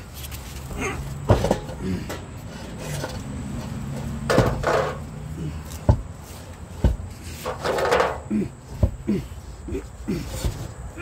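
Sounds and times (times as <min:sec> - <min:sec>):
tools knocking on car underside: 0:01.2 - 0:02.2, 0:04.2 - 0:05.0, 0:05.8 - 0:06.1, 0:06.8 - 0:09.1.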